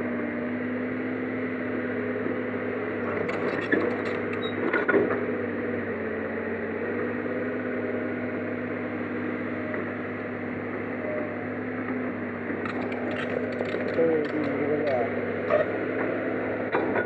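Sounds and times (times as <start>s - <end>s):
excavator diesel engine running: 0.0s - 17.0s
short clatter: 3.1s - 4.8s, 12.6s - 15.6s.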